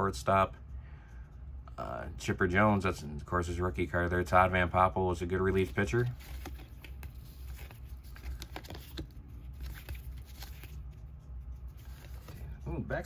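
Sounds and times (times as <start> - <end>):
cards flipped by hand: 5.4 - 12.6.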